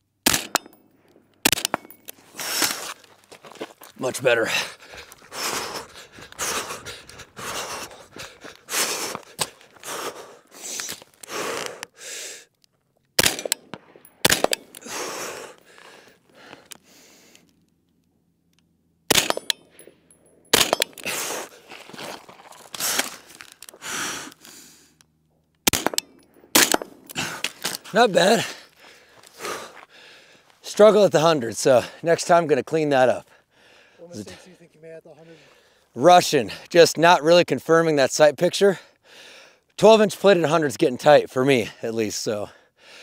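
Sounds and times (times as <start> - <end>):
rifle shots: 0.2 - 2.8, 13.2 - 15.2, 19.1 - 19.6, 20.5 - 21.2, 25.6 - 27.7
boots and gear scuffling on gravel: 1.8 - 11.8, 20.6 - 24.7, 26.9 - 30.6
footsteps crunching on gravel: 2.1 - 11.7, 21.0 - 24.6, 27.2 - 30.6.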